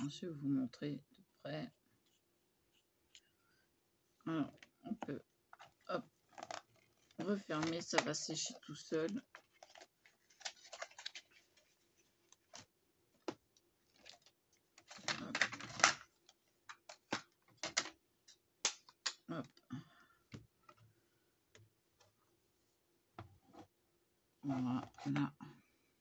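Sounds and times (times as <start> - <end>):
plastic items clicking and tapping: 4.5 - 11.3, 12.4 - 19.6
plastic items clattering: 4.5 - 18.0.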